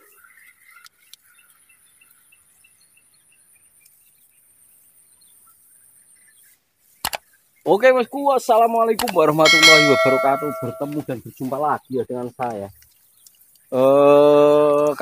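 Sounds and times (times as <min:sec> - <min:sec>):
faint insect chirp: 0:00.1 - 0:09.4.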